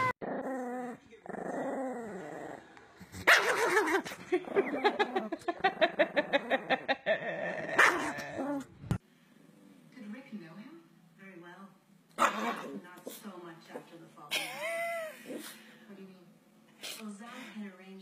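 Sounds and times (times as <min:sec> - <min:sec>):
small dog growling and snarling: 0:00.0 - 0:05.2, 0:06.0 - 0:08.8, 0:12.2 - 0:12.8.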